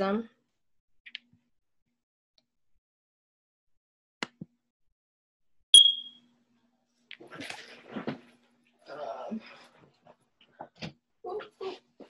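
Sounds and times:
fire alarm chirp: 5.8 - 6.2.

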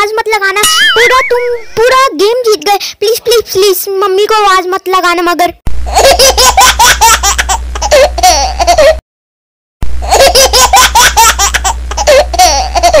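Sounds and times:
high-pitched cartoon laughter: 0.6 - 2.1, 5.9 - 9.0, 10.1 - 13.0.

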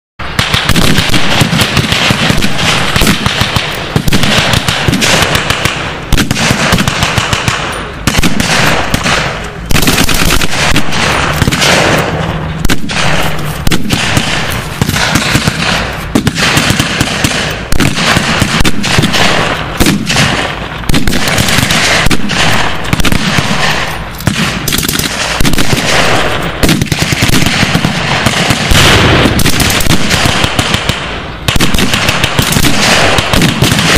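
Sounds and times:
machine-gun fire: 0.2 - 33.9
rifle shots: 0.2 - 33.9.

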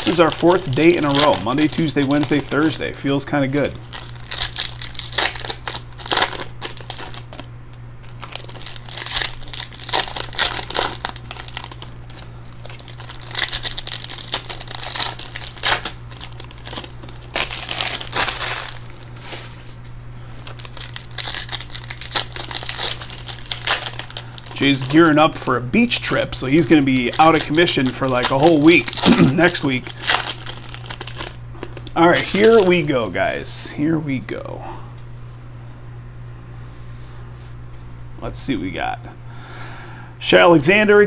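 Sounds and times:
packs torn open: 0.0 - 2.8, 3.5 - 33.4
foil wrappers crinkling: 0.0 - 33.7
steady low hum: 0.0 - 41.0.

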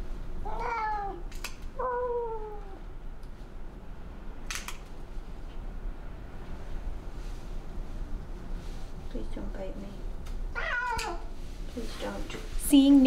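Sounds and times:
cat yowling: 0.4 - 1.2, 1.8 - 2.8, 10.5 - 11.3.

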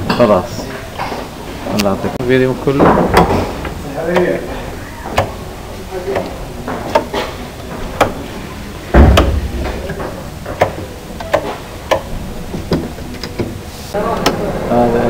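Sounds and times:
light switches clicking: 5.1 - 5.4, 10.6 - 12.1
heavy thump: 8.9 - 10.7.

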